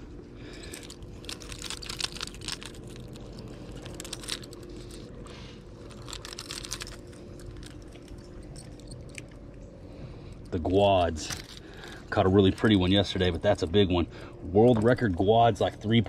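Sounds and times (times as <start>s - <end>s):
steady low hum: 0.0s - 16.0s
fishing hooks clicking and rattling: 0.5s - 5.1s, 5.8s - 9.5s.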